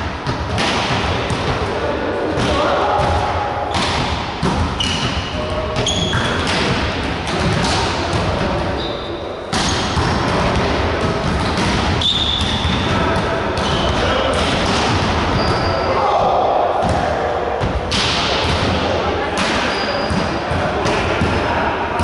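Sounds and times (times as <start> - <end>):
shoe squeaks: 4.8 - 5.2, 5.8 - 6.5, 8.7 - 9.9, 12.0 - 12.6, 13.6 - 14.0, 15.3 - 16.0, 19.6 - 20.2.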